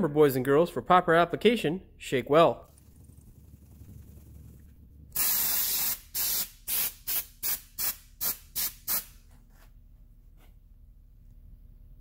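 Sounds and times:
aerosol can spraying hiss: 5.1 - 9.1.

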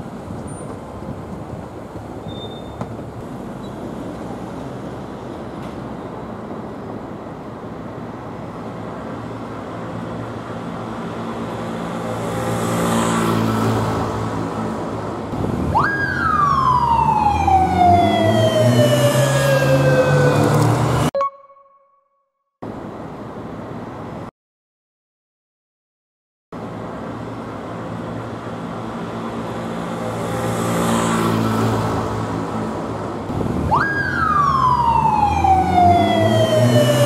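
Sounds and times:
street traffic hum: 0.0 - 21.2, 22.6 - 24.3, 26.5 - 37.0
police siren wailing: 15.6 - 21.7, 33.6 - 37.0.

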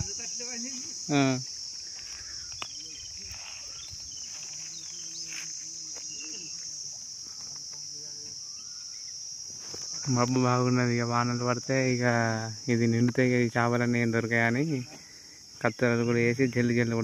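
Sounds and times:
insect chorus buzzing: 0.0 - 17.0.

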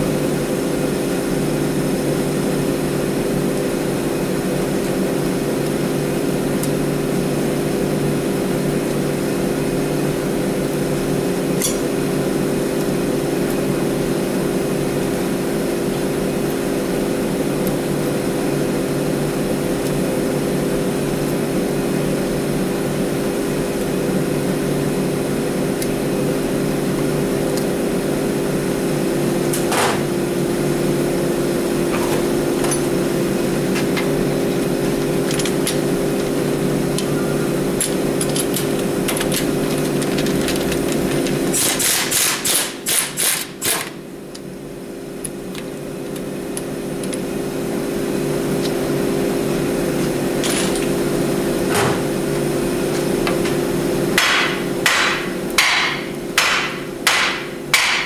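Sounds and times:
shop motor humming: 0.0 - 58.0
sharp metallic knocks: 54.2 - 58.0.

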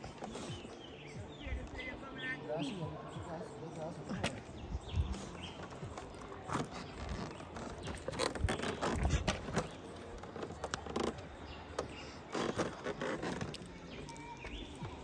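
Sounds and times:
hollow knocks of bamboo raft: 5.1 - 13.8.

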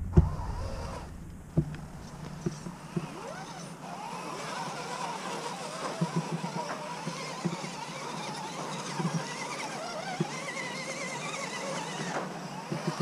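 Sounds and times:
electric motors whining: 0.0 - 13.0.

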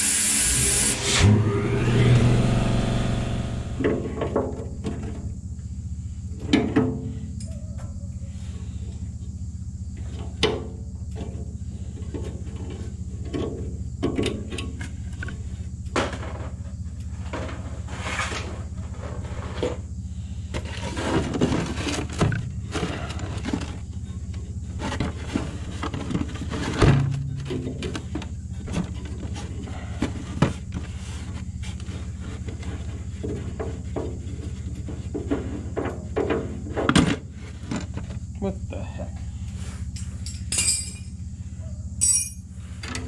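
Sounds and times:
steady low hum: 0.1 - 43.0
hand tool clicking and tapping metal: 42.0 - 42.4.

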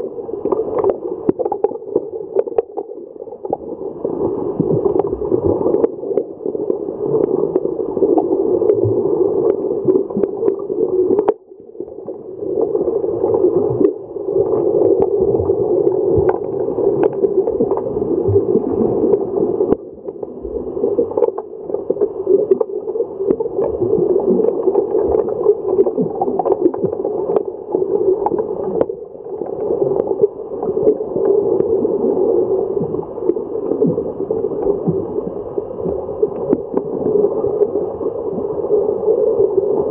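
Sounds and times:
muffled underwater rush and bubbles: 0.0 - 39.9
sharp underwater clicks and knocks: 0.5 - 3.6.

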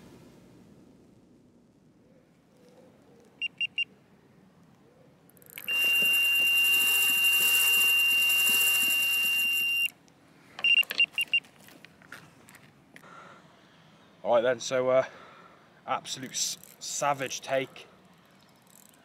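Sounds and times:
bite alarm beeping: 3.4 - 3.9, 5.6 - 9.9, 10.6 - 11.4
fishing line whirring off reel: 5.3 - 9.9, 18.2 - 19.0
continuous alarm tone: 5.6 - 9.9.

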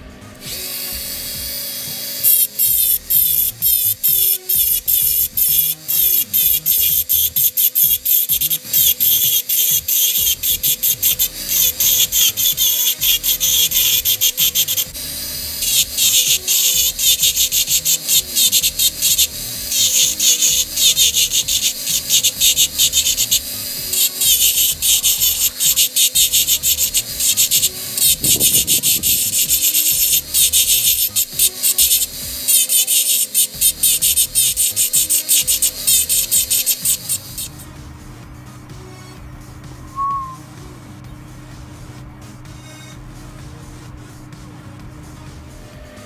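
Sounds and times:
rotary tool motor whine: 0.0 - 37.6
burr rasping on metal: 0.5 - 37.6.

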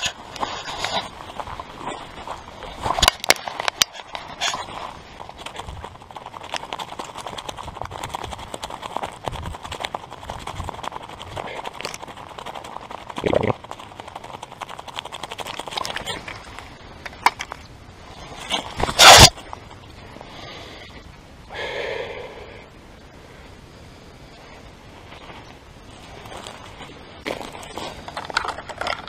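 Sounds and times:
footsteps through dry grass: 0.0 - 16.8, 24.9 - 28.1.

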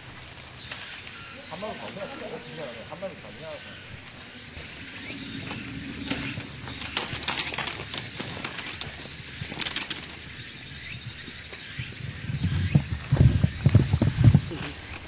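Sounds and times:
outdoor hiss: 0.0 - 15.0
footsteps on gravel: 3.6 - 15.0.

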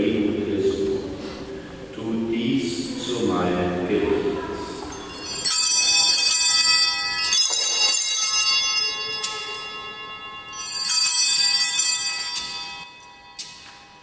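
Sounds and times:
small bells jingling: 4.6 - 14.0.

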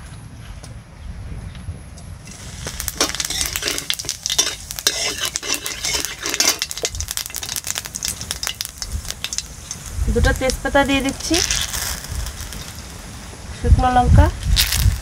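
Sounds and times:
seeds sizzling in hot oil: 2.2 - 15.0
metal spatula scraping pan: 2.3 - 9.9.

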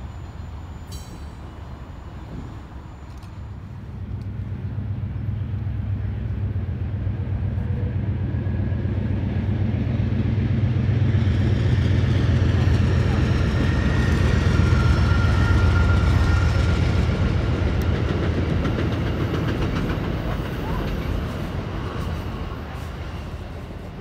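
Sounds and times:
diesel locomotive engine drone: 0.0 - 24.0
train wheels clattering over rail joints: 16.9 - 21.6.

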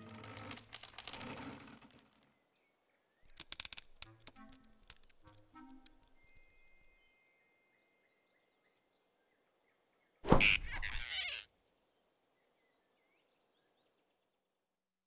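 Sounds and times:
cartoon thump and swish: 10.2 - 11.0
cartoon character startled cry: 10.4 - 11.4.

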